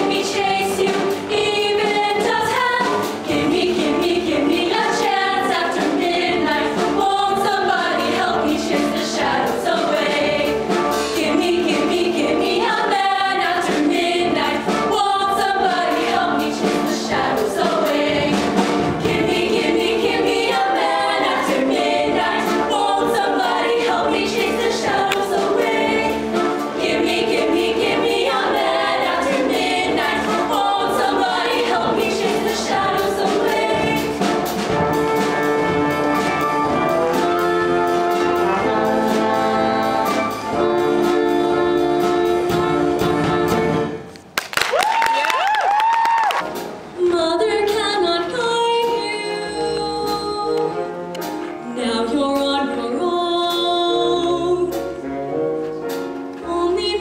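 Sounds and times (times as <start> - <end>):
female choir singing: 0.0 - 34.2, 47.0 - 50.7
brass accompaniment: 0.0 - 44.2.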